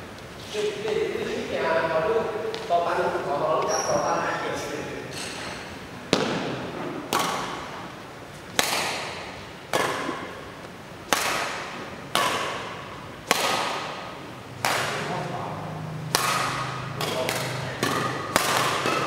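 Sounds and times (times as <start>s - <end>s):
racquets hitting shuttlecock: 5.1s - 15.3s, 16.0s - 19.0s.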